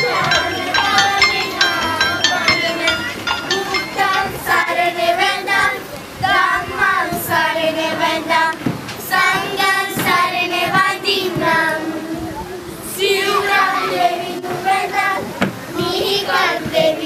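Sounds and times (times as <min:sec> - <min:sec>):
sharp beats: 0:00.0 - 0:05.7
girls singing together: 0:00.0 - 0:17.0.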